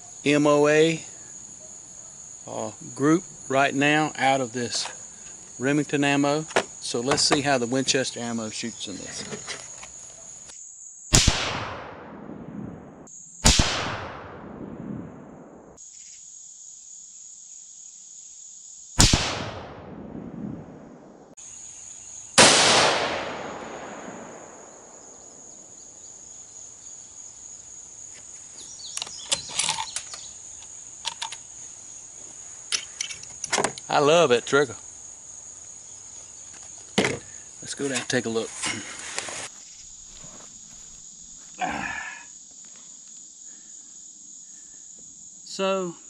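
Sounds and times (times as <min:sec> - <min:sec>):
insects buzzing: 0:00.0 - 0:46.0
rifle shots with echo: 0:11.1 - 0:15.6, 0:19.0 - 0:20.9, 0:22.4 - 0:25.1.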